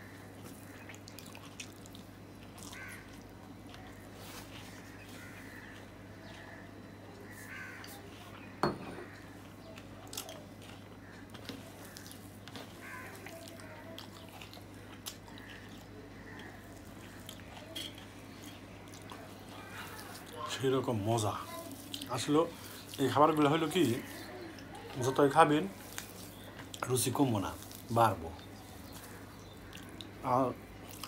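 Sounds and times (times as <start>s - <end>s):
soft chewing: 0.0s - 31.0s
fingers squeezing food on plate: 9.0s - 30.2s.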